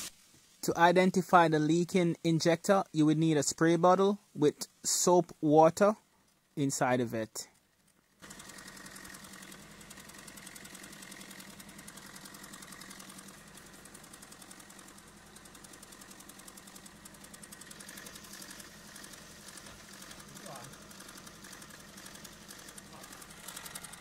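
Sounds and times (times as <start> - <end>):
diesel engine idling: 8.2 - 24.0.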